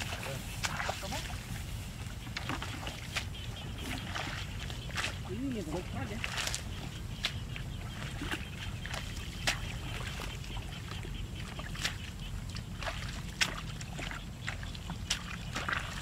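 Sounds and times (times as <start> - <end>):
hands rustling through grass: 0.0 - 11.9.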